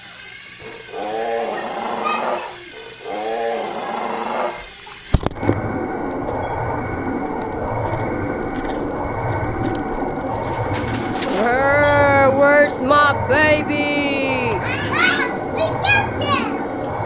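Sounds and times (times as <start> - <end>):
toy dinosaur roaring: 0.6 - 4.7
steady low rumbling: 5.2 - 17.0.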